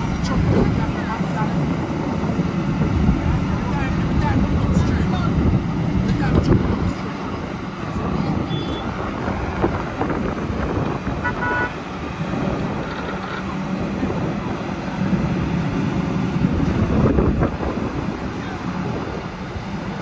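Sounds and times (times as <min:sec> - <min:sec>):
road traffic noise: 0:00.0 - 0:20.0
truck engine running: 0:00.0 - 0:20.0
horn toot: 0:11.2 - 0:11.8.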